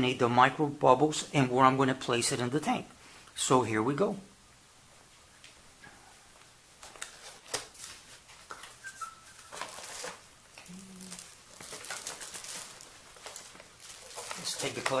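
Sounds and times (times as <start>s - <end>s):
cardboard scraping and rustling: 9.4s - 10.2s.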